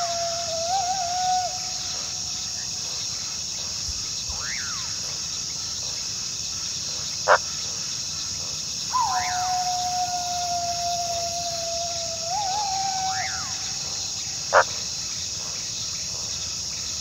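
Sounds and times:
coyote howling: 0:00.0 - 0:02.4, 0:08.9 - 0:14.6
insects chirring: 0:00.0 - 0:17.0
coyote yipping: 0:08.9 - 0:13.9.

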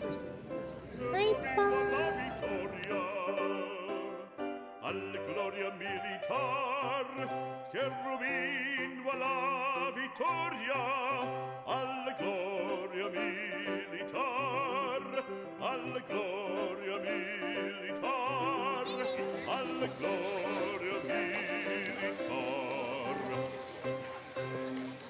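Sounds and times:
orchestra: 0:00.0 - 0:25.0
opera singer with vibrato: 0:01.0 - 0:04.2, 0:04.8 - 0:23.7.

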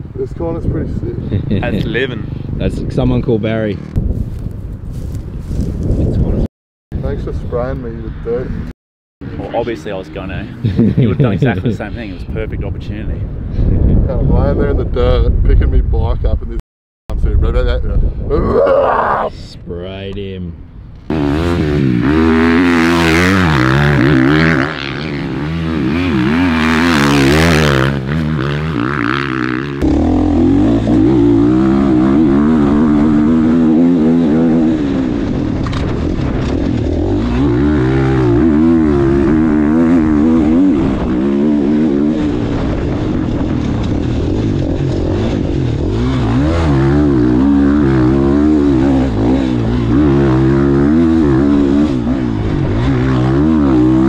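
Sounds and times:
dirt bike engine revving: 0:21.1 - 0:54.0.

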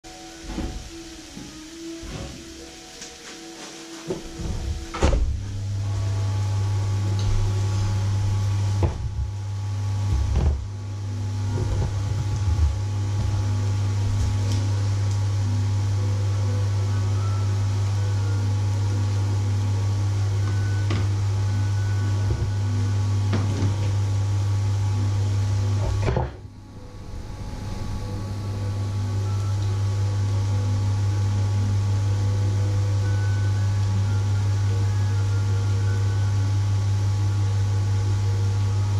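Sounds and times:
loud low electrical hum: 0:00.0 - 0:38.9
light hiss: 0:00.1 - 0:26.2.

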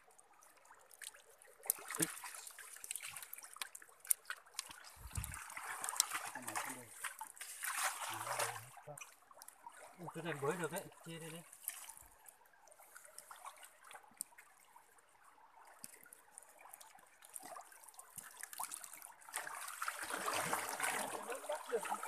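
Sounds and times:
stream water trickling: 0:00.0 - 0:22.0
small clicks and crackles: 0:00.2 - 0:09.8, 0:11.0 - 0:15.0, 0:15.6 - 0:19.5.

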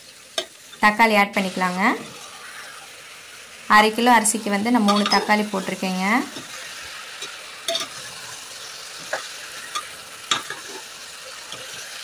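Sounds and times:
vegetables sizzling in oil: 0:00.0 - 0:12.0
metal spoon scraping a pot: 0:07.2 - 0:08.2, 0:09.0 - 0:10.9.

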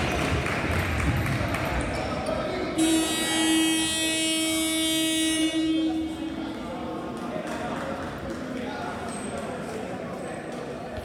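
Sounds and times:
scoreboard buzzer long nasal tone: 0:02.8 - 0:06.2.

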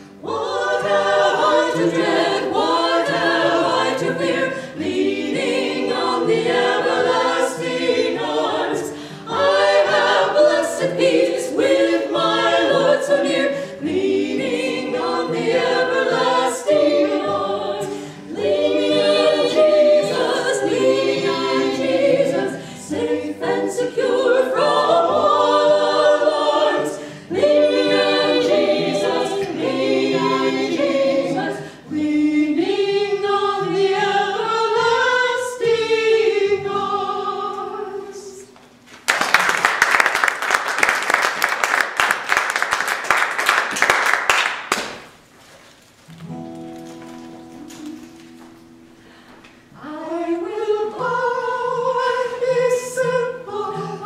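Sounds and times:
women singing in harmony: 0:00.0 - 0:38.6, 0:49.7 - 0:54.0.

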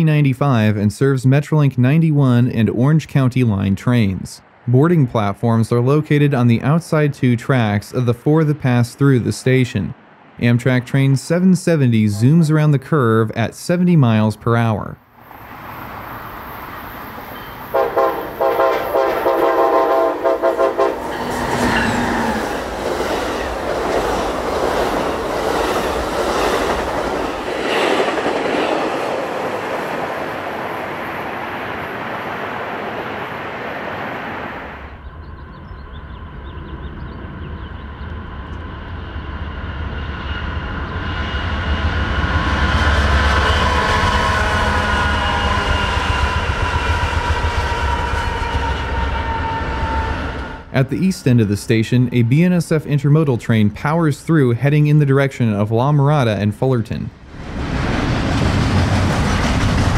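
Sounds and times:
diesel locomotives rumbling: 0:00.0 - 0:59.9
passenger train rushing past: 0:02.4 - 0:14.5, 0:15.1 - 0:59.9
train horn blasts: 0:17.4 - 0:22.4, 0:42.8 - 0:50.8.

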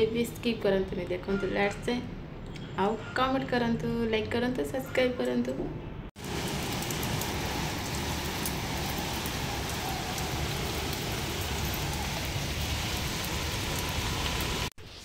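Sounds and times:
drops pattering into puddles: 0:06.2 - 0:14.7
rain on concrete: 0:06.2 - 0:15.0.

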